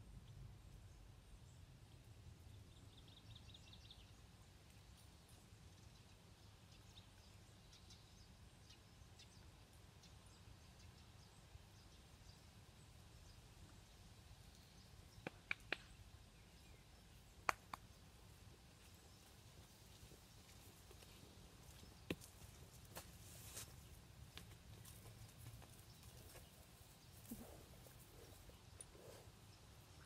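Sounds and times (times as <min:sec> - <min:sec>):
sharp clicks: 0:15.2 - 0:15.9.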